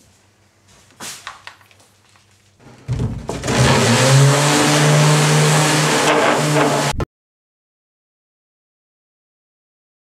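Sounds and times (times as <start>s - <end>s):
electric sander motor humming: 3.4s - 7.0s.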